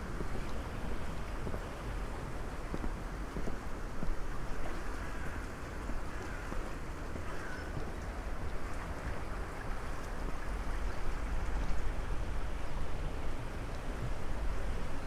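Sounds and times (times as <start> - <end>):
faint bird calls: 6.1 - 7.8.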